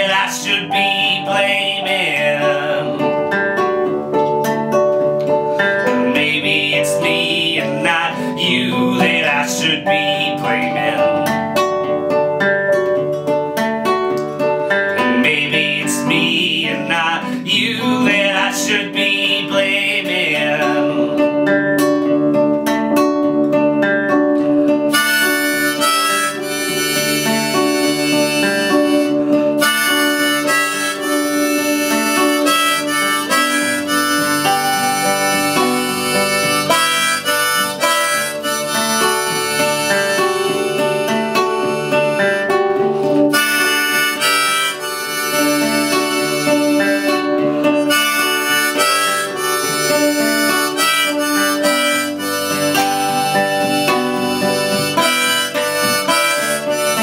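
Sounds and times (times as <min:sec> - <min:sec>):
man singing: 0:00.0 - 0:03.4, 0:05.8 - 0:11.3, 0:15.0 - 0:21.5
harmonica: 0:00.0 - 0:23.6, 0:24.3 - 0:57.0
keyboard chords: 0:00.0 - 0:57.0
nylon-string guitar strumming: 0:00.0 - 0:57.0.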